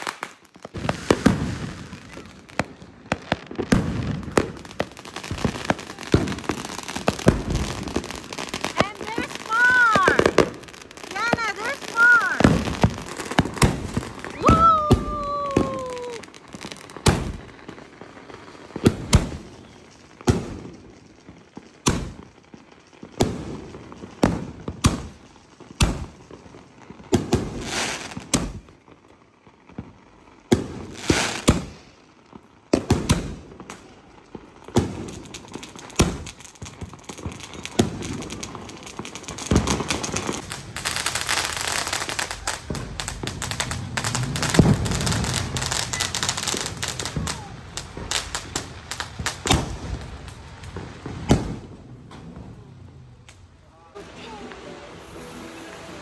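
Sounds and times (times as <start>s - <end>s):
firecracker bangs: 0.0s - 17.6s, 21.8s - 22.4s, 24.2s - 26.2s, 27.2s - 28.7s, 34.7s - 50.1s, 50.7s - 52.7s
dense firework crackling: 0.0s - 56.0s
falling firework whistle: 13.3s - 16.4s, 41.3s - 48.5s, 53.8s - 56.0s.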